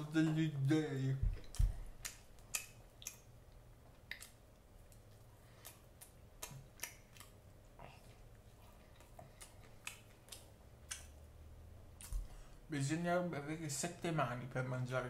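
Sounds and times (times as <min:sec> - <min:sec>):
person chewing: 0:01.4 - 0:11.2, 0:11.9 - 0:12.4.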